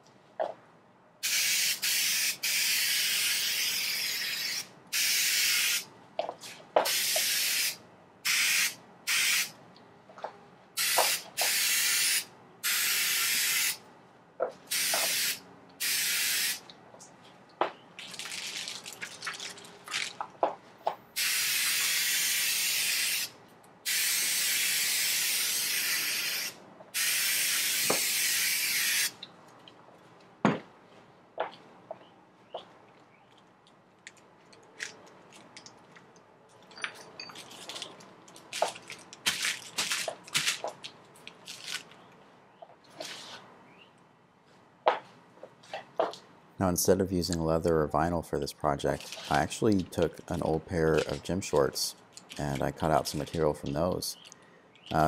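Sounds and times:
aerosol spray can hissing: 1.2 - 5.8, 6.9 - 9.5, 10.8 - 13.8, 14.7 - 16.6, 21.2 - 23.3, 23.9 - 29.1.

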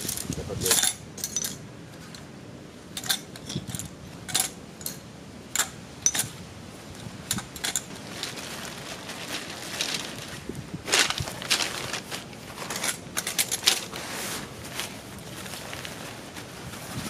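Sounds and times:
metal tent stakes clinking: 0.0 - 2.3, 2.9 - 16.3
fabric rustle: 6.8 - 17.0.

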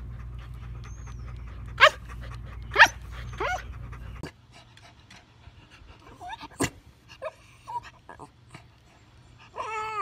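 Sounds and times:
puppy yelping barks: 1.8 - 2.0, 2.7 - 3.7.

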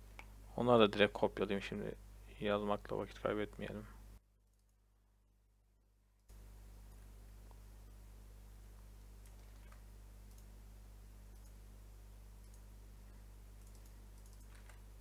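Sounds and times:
mouse clicks: 9.2 - 10.5, 11.3 - 11.6, 12.4 - 12.7, 13.6 - 14.8.

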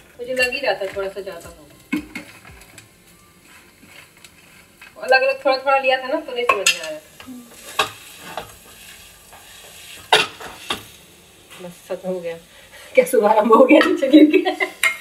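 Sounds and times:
metal utensil scraping pan: 0.2 - 2.8, 3.4 - 7.0, 7.6 - 11.0
utensil knocking against pan: 1.9 - 2.8.

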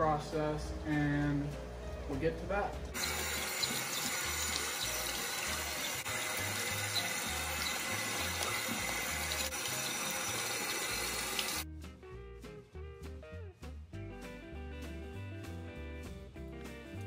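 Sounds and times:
tap water splashing into sink: 3.0 - 11.6.

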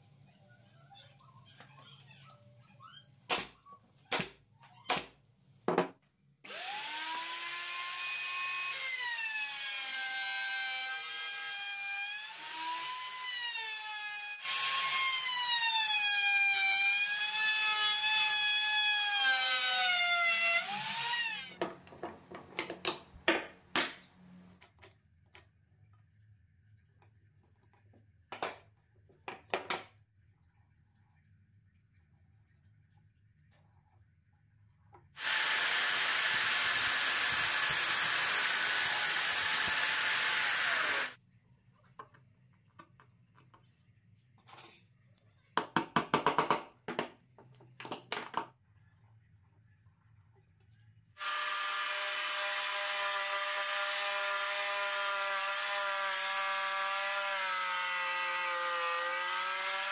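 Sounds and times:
power tool whining cutting wood: 6.5 - 21.6, 35.2 - 41.2, 51.2 - 59.9
wooden pieces knocking: 21.6 - 24.0, 45.6 - 48.5.

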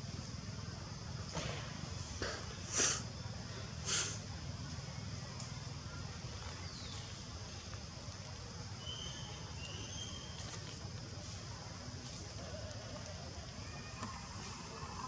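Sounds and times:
faint high chirps: 8.8 - 10.7.

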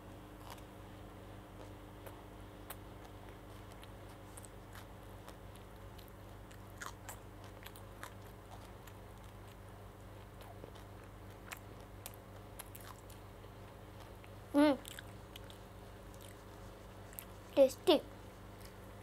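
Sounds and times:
child chewing: 0.3 - 0.8, 1.5 - 19.0.

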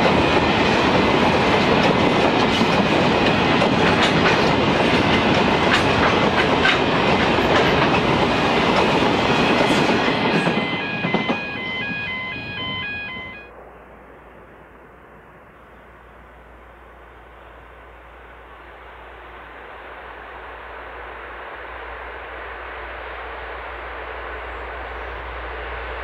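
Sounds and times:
wheels clicking over rail joints: 0.0 - 11.4
freight train rumbling past: 0.0 - 26.0.

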